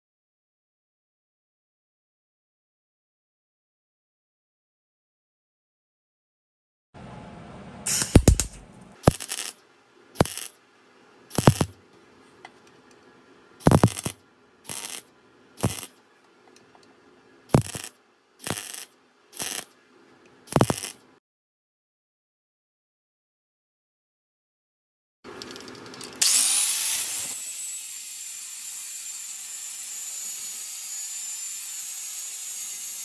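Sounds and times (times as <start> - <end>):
welder low hum: 7.0 - 9.6, 10.2 - 10.6, 11.3 - 11.8, 13.6 - 16.0, 17.5 - 19.7, 20.5 - 21.0
welding arc noise: 7.9 - 9.6, 10.2 - 10.6, 11.3 - 11.8, 13.6 - 16.0, 17.5 - 19.8, 20.5 - 21.1, 25.4 - 33.0.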